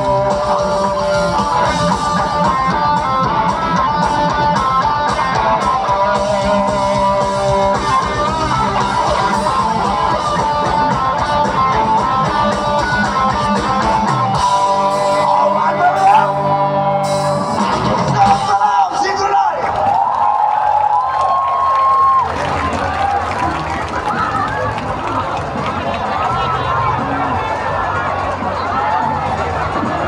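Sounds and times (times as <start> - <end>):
electric guitar chords: 0.0 - 19.0
driving drum beat: 0.0 - 19.8.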